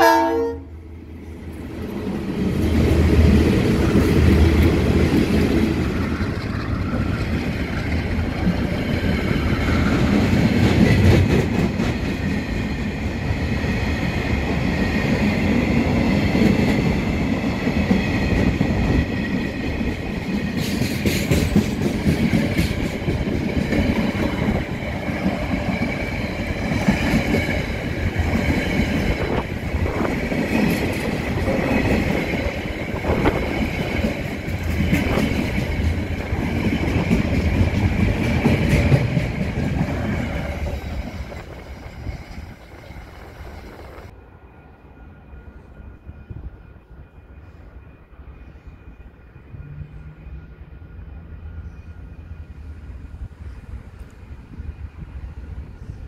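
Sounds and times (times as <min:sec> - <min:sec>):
train wheels rumbling on rails: 0:00.0 - 0:44.2
diesel locomotive engine rumble: 0:00.0 - 0:56.0.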